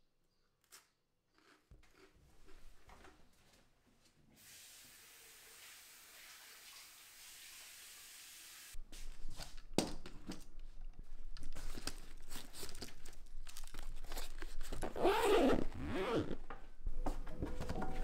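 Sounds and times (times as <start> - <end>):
running tap water: 4.4 - 8.8
fabric and padding rustling: 14.0 - 18.0
zipper being pulled: 14.7 - 16.4.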